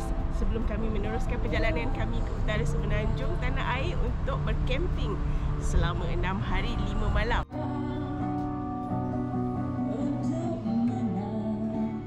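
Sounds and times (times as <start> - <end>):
acoustic guitar: 0.0 - 12.0
person singing: 7.4 - 12.0.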